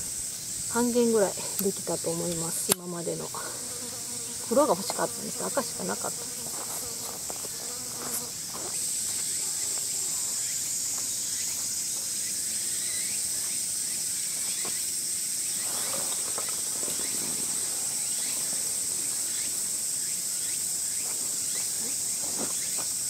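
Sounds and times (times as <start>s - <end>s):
cicadas droning: 0.0s - 23.0s
tarp rustling: 15.6s - 19.5s.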